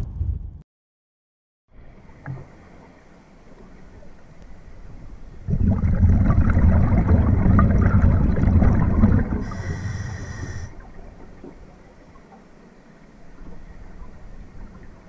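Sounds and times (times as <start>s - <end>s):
exhaled bubbles gurgling: 5.2s - 11.9s
regulator inhale hiss: 9.4s - 10.8s.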